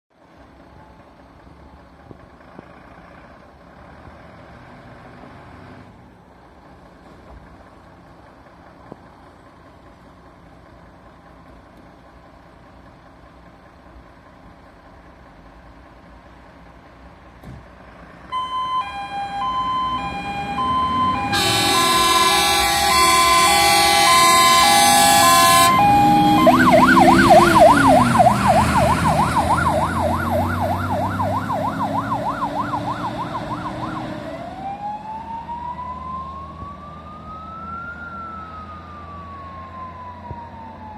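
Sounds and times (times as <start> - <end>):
diesel engine running: 0.2 - 40.9
two-tone siren: 18.3 - 40.9
warbling siren wail: 18.3 - 40.9
loud horn blasts: 18.9 - 27.4.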